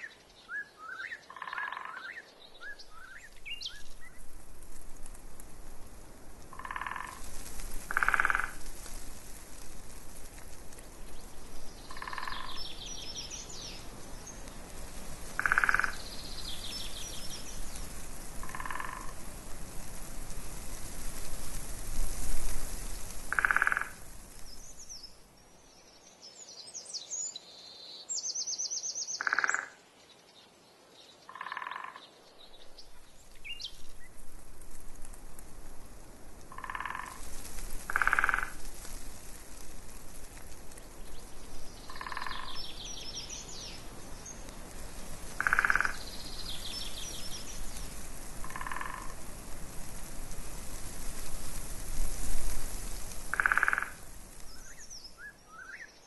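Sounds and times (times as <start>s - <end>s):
small birds twittering: 0.0s - 4.3s, 9.9s - 19.2s, 22.8s - 34.2s, 40.8s - 49.2s, 52.7s - 56.0s
frog croaking: 1.3s - 2.1s, 6.5s - 7.2s, 7.9s - 8.6s, 11.9s - 12.6s, 15.4s - 16.1s, 18.4s - 19.2s, 23.3s - 24.0s, 29.2s - 29.8s, 31.3s - 32.0s, 36.5s - 37.2s, 37.9s - 38.6s, 41.9s - 42.6s, 45.4s - 46.0s, 48.4s - 49.2s, 53.3s - 54.0s.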